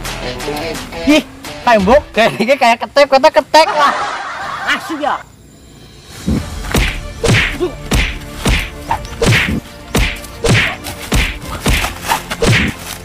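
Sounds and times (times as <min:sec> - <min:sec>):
whacking punch hits with swish: 0:06.3 - 0:12.8.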